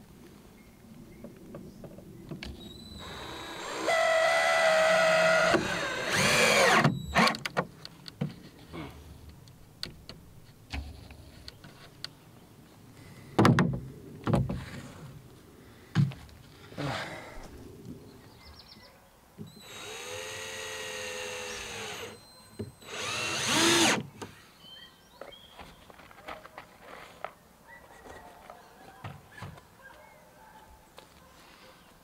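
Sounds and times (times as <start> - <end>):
electric drill whining: 2.9 - 7.4, 19.5 - 22.2, 22.8 - 24.0.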